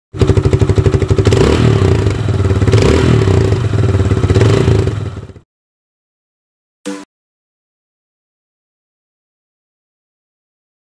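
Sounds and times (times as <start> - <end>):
motorcycle engine revving: 0.1 - 5.4.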